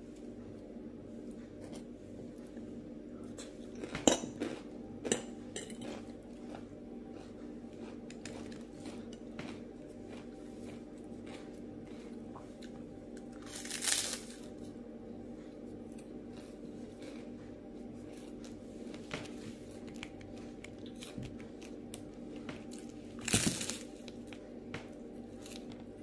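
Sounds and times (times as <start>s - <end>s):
soft eating sounds: 0.0s - 26.0s
crunchy bite of rice cake: 5.8s - 14.5s.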